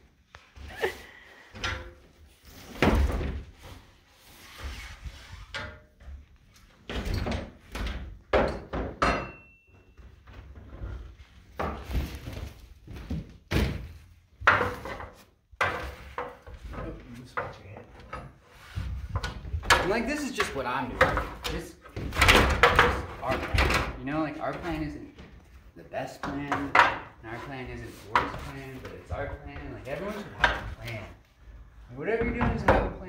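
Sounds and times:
wooden boards knocking and thudding: 0:07.3 - 0:09.3, 0:12.9 - 0:18.1, 0:18.9 - 0:24.0, 0:26.2 - 0:27.2, 0:32.2 - 0:33.0.

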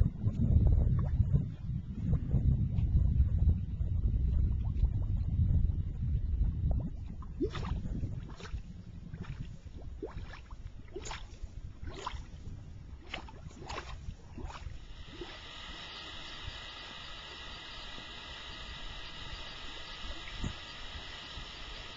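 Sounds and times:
low rumble: 0:00.0 - 0:21.9
mud bubbles plopping: 0:06.7 - 0:12.4, 0:13.0 - 0:15.4
steady hiss: 0:14.6 - 0:21.9.

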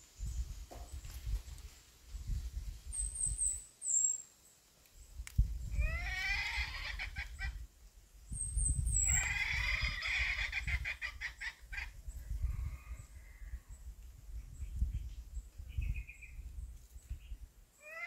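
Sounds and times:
hen clucking: 0:05.8 - 0:07.6, 0:09.0 - 0:12.0.

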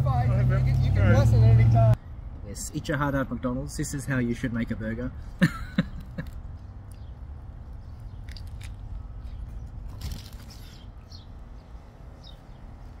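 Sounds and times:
biting and chewing burger: 0:07.7 - 0:10.9
crisp crunches: 0:08.2 - 0:09.0, 0:09.9 - 0:10.8.

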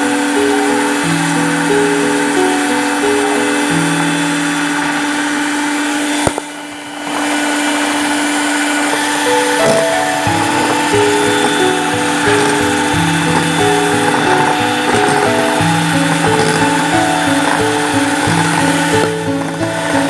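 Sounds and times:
electric mixer running: 0:00.0 - 0:20.0
background music: 0:09.1 - 0:20.0.

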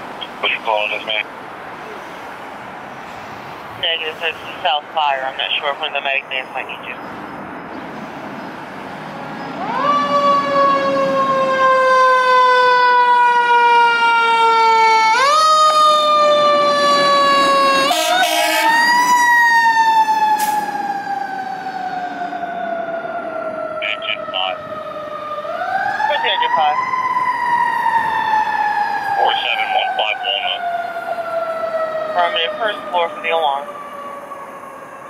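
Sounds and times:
fire engine siren: 0:08.0 - 0:35.0.

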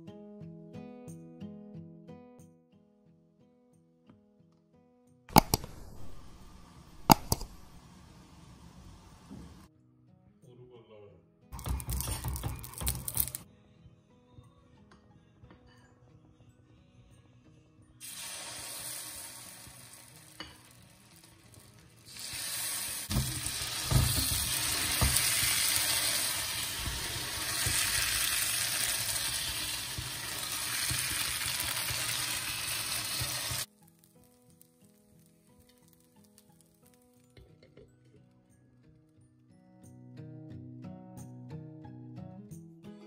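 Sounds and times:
batter sizzling in a hot pan: 0:18.0 - 0:37.4.

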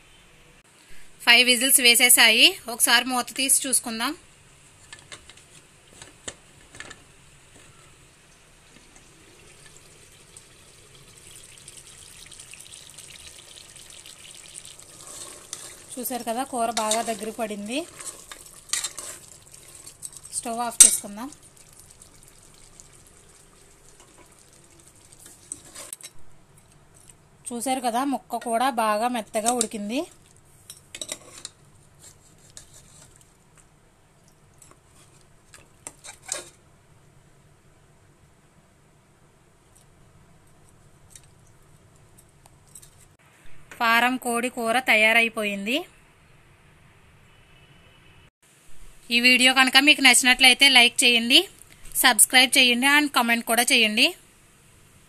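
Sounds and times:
curry bubbling and sizzling: 0:07.4 - 0:26.2, 0:29.2 - 0:36.7
metal spoon scraping pot: 0:14.8 - 0:21.1, 0:25.2 - 0:26.2, 0:31.0 - 0:33.2.

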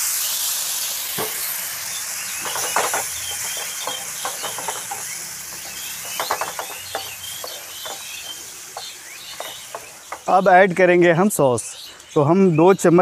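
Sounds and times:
water sizzling in hot pan: 0:00.0 - 0:11.0
wooden spatula scraping pan: 0:02.4 - 0:10.4.

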